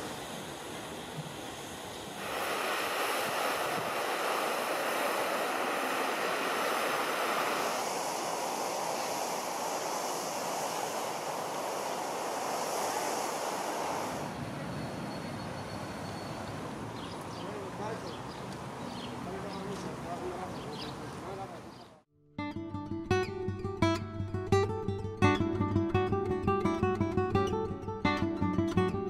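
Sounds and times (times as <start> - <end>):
fountain spray splashing on water: 0.0 - 21.8.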